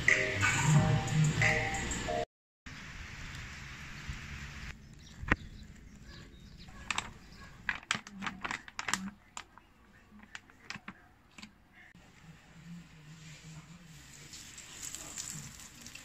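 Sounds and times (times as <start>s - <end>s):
plastic packaging crinkling: 6.7s - 11.5s.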